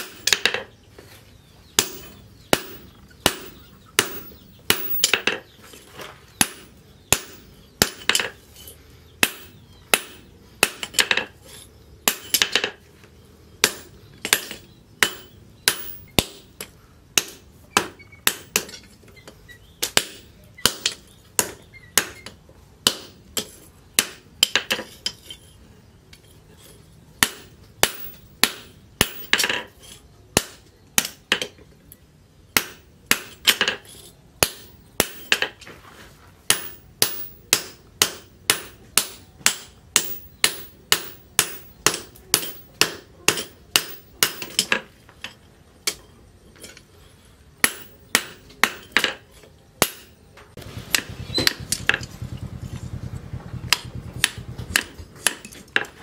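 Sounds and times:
hammer striking hot steel on anvil: 1.7 - 5.5, 6.3 - 8.4, 9.2 - 11.3, 12.0 - 12.8, 13.6 - 18.9, 19.8 - 25.4, 26.2 - 31.5, 32.6 - 35.6, 36.4 - 44.9, 47.6 - 50.3, 50.9 - 52.1, 53.7 - 56.0.

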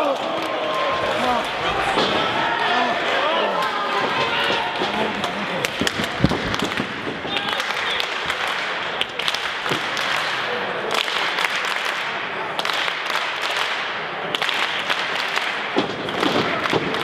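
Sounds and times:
audience applauding: 4.0 - 17.0.

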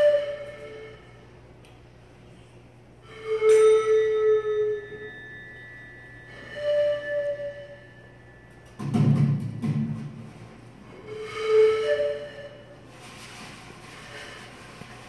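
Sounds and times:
pitched wind instrument tone: 0.0 - 1.6, 3.0 - 14.7
metallic strike ringing: 3.2 - 11.2.

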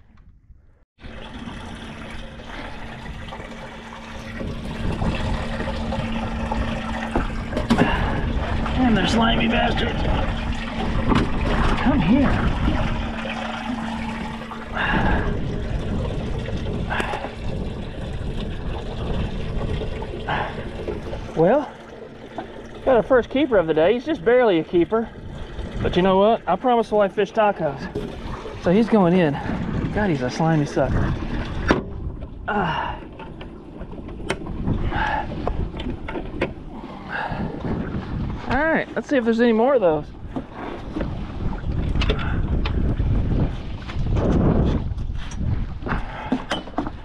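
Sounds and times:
water lapping around boat: 1.0 - 47.0
wind buffeting microphone: 2.7 - 47.0.

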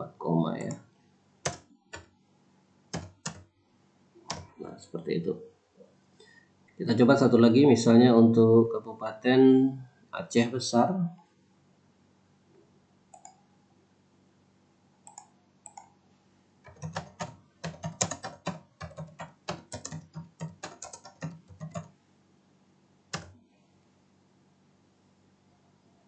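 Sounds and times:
typing on a computer keyboard: 1.4 - 2.1, 2.9 - 3.5, 4.3 - 4.6, 13.1 - 13.4, 15.1 - 15.9, 16.7 - 21.9, 23.1 - 23.4.

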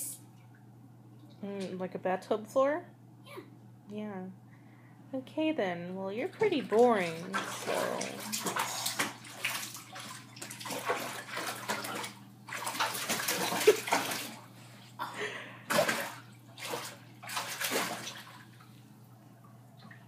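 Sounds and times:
steady low hum: 0.0 - 20.0
water splashing in a tub: 6.3 - 15.0, 15.7 - 20.0.

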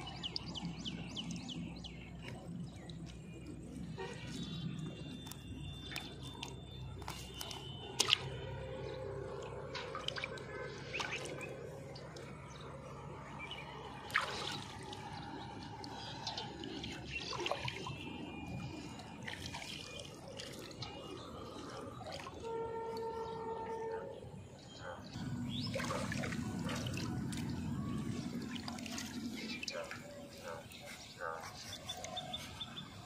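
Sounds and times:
fish splashing in a basin: 7.3 - 11.6, 13.9 - 16.0, 25.4 - 27.6.

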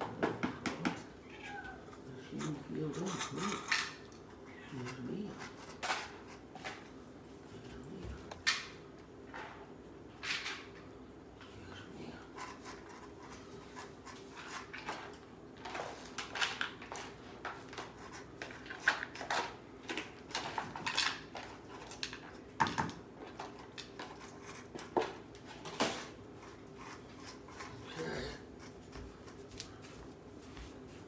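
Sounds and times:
plastic trays on tile floor: 0.0 - 11.6, 12.4 - 31.0
utensil scraping cat food tray: 0.9 - 7.0, 11.9 - 22.5, 23.3 - 29.4.

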